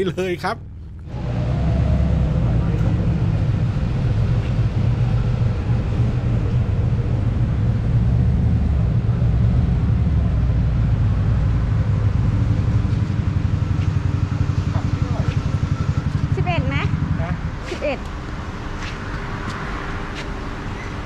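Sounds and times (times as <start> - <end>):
motorcycle engine running: 0.6 - 18.0.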